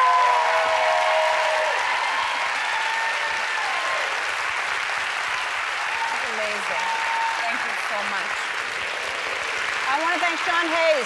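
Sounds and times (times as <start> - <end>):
high whoop: 0.0 - 4.2, 5.9 - 7.5
audience applauding and cheering: 0.0 - 11.0.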